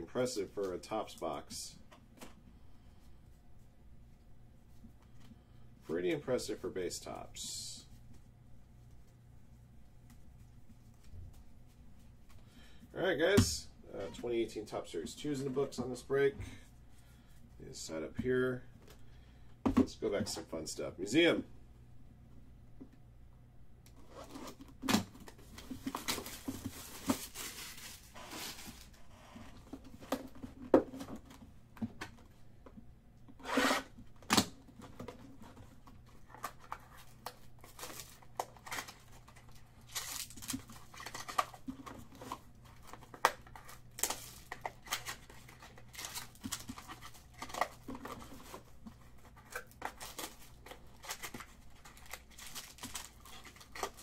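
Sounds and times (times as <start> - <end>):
wrapper crinkling: 25.8 - 29.0, 36.2 - 41.7, 42.3 - 54.0.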